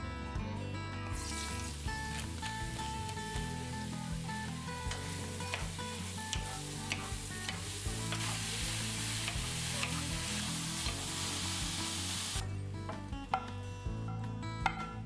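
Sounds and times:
soft background music: 0.0s - 15.0s
mushrooms sizzling in a pan: 1.2s - 12.4s.

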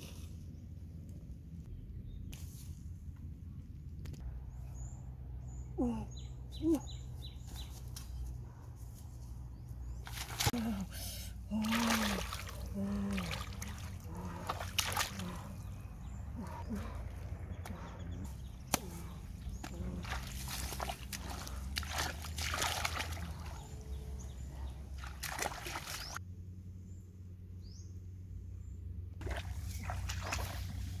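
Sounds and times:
steady low rumble: 0.0s - 11.6s
muddy water sloshing and splashing: 10.0s - 26.2s, 29.2s - 31.0s.

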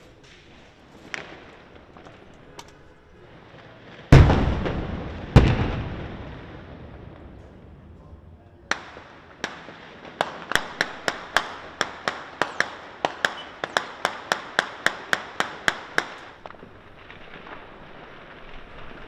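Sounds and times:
gunshots with echo: 8.7s - 16.5s.

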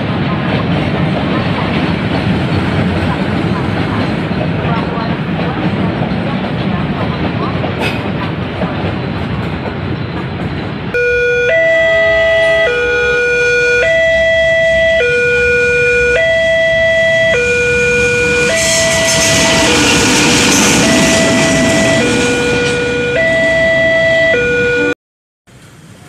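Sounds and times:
two-tone level crossing alarm: 11.0s - 25.0s.

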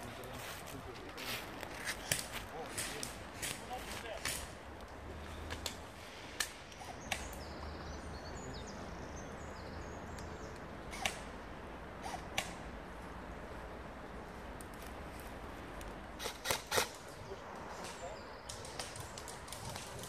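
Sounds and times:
bird chirping: 6.7s - 11.2s.

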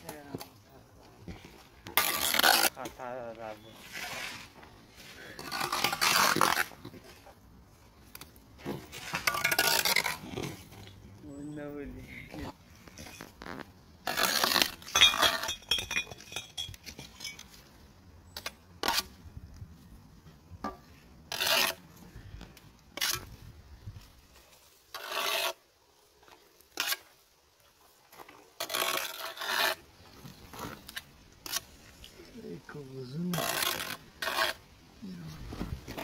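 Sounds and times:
trowel scraping mortar: 1.3s - 7.3s, 8.6s - 10.9s, 12.3s - 17.6s, 18.4s - 19.2s, 21.3s - 21.9s, 22.9s - 23.4s, 24.4s - 25.6s, 26.2s - 27.2s, 28.1s - 36.0s.

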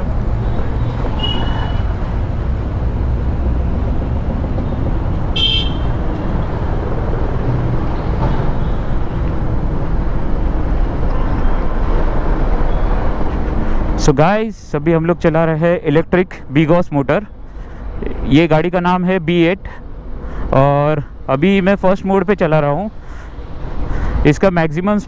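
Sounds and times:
wind rumble: 0.0s - 14.0s
road noise: 0.0s - 25.0s
horn toot: 5.4s - 5.9s.

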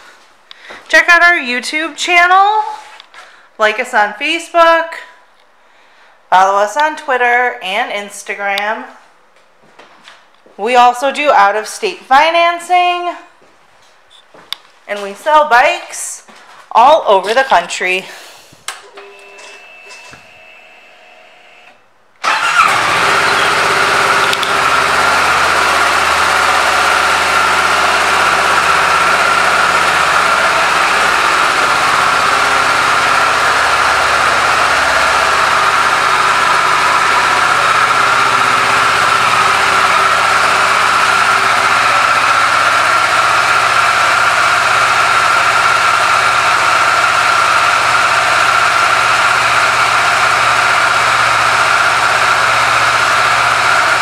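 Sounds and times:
motorcycle engine starting and idling: 21.6s - 54.0s.

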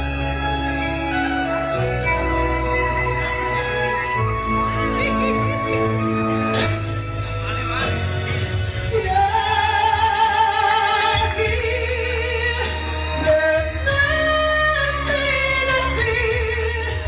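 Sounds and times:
musical accompaniment with bass line: 0.0s - 17.0s
woman singing into microphone: 8.8s - 17.0s.

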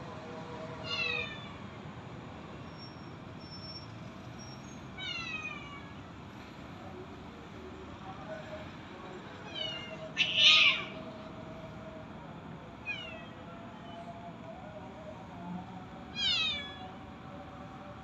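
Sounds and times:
cat meowing: 5.0s - 6.0s, 9.5s - 11.0s, 16.2s - 16.9s.

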